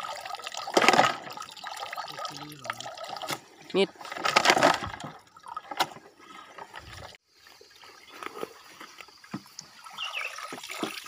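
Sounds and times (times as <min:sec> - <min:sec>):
water trickling and dripping: 0:00.0 - 0:03.8, 0:09.2 - 0:11.0.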